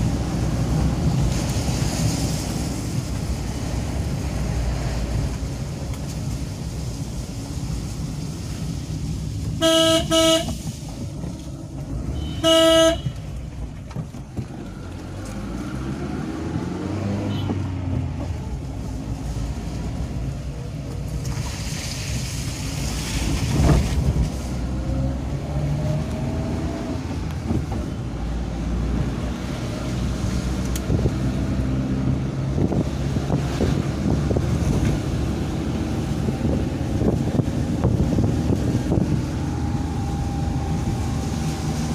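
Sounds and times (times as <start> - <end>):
van engine and road noise: 0.0 - 41.9
vehicle horn honking: 9.6 - 10.6, 12.1 - 13.2, 17.2 - 17.6.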